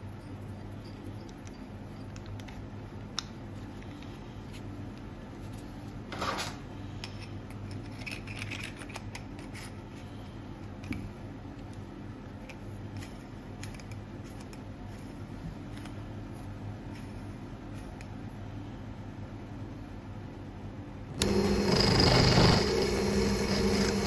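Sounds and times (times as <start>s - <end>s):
steady low hum: 8.8s - 24.0s.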